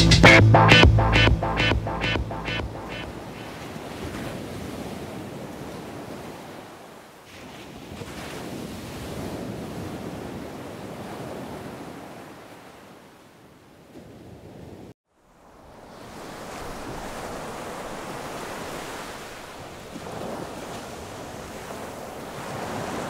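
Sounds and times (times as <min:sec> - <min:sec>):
ocean waves breaking: 0:01.5 - 0:12.8, 0:15.3 - 0:23.0.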